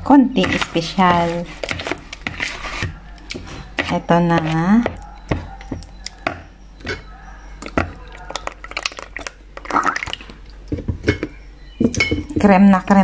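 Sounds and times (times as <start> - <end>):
spoon scraping plastic bowl: 0.4 - 9.8.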